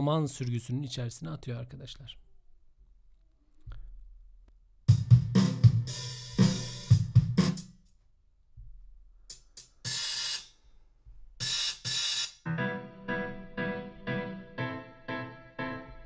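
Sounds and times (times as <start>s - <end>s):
hip-hop drum loop: 4.9s - 7.8s, 8.6s - 12.4s
hi-hat sample hits: 4.9s - 7.9s, 9.3s - 10.5s, 11.4s - 12.4s.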